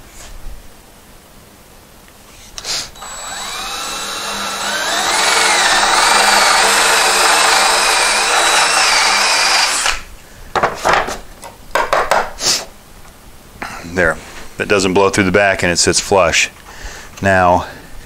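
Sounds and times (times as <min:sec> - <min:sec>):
drill trigger click: 0:03.0 - 0:10.0
drill bit boring into wood: 0:03.0 - 0:10.1.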